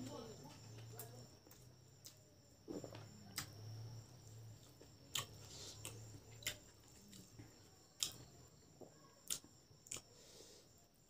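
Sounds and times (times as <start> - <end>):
quiet chewing: 4.2 - 10.5.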